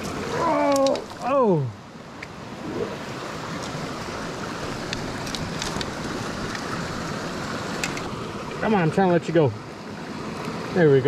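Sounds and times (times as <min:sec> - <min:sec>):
stream running over rocks: 0:00.0 - 0:11.0.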